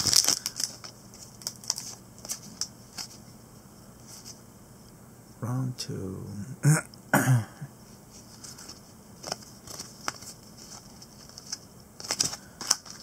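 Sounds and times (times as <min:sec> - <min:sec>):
cards rustling: 0:00.0 - 0:03.2, 0:08.1 - 0:13.0.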